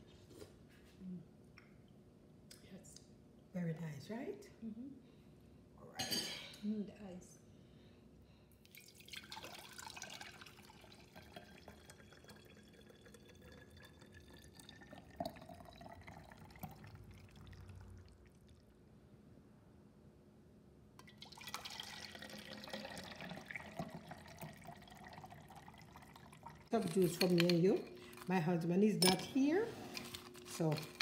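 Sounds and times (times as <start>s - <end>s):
juice pouring into jar: 8.6s - 18.7s, 21.0s - 27.3s.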